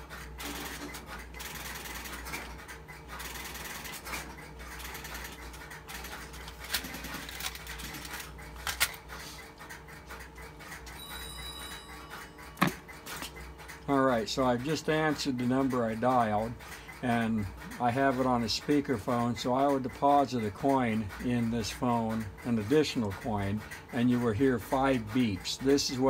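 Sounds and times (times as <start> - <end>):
telephone line noise: 10.8 - 12.8.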